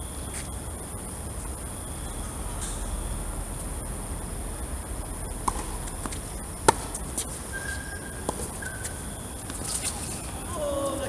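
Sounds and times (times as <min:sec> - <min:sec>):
insects chirring: 0:00.0 - 0:11.0
tennis ball pocks: 0:05.4 - 0:10.1.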